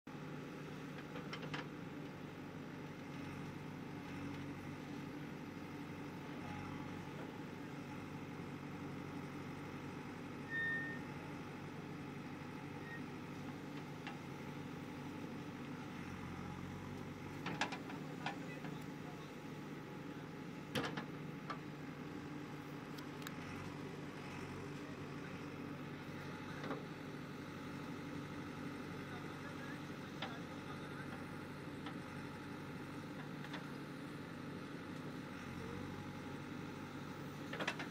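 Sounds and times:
diesel engine under load: 0.1 - 37.9.

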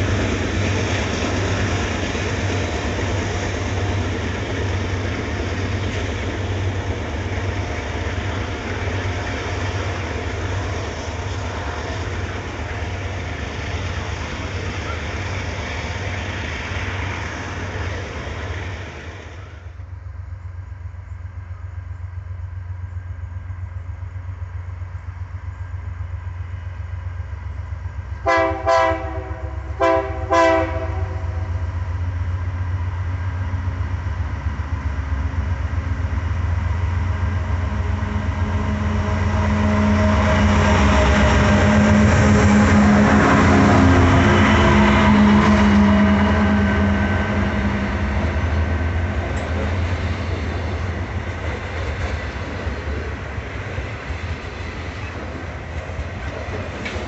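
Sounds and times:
diesel locomotive engine rumble: 0.0 - 57.0
locomotive air horn blasts: 28.2 - 31.6, 37.7 - 47.6.

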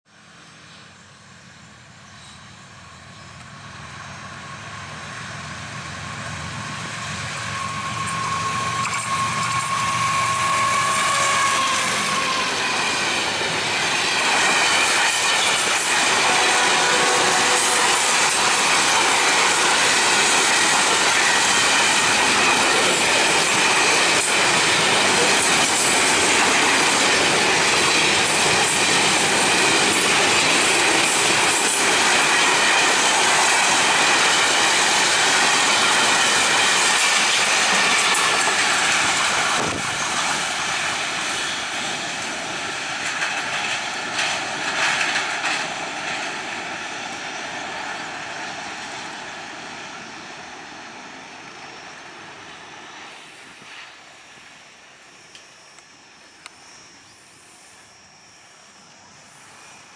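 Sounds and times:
freight train rumble: 0.1 - 59.9
wheels on rail: 0.2 - 59.9
high ringing: 7.3 - 15.1.

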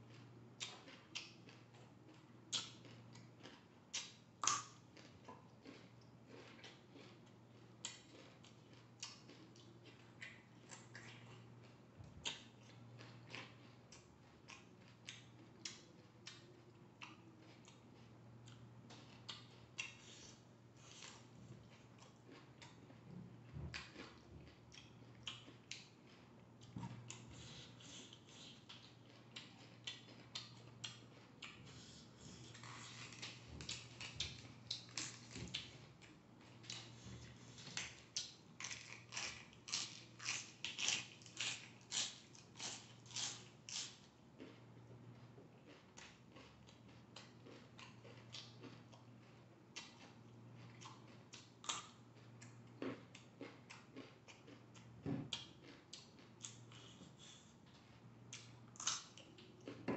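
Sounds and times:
crunching raw vegetables: 17.0 - 44.6.

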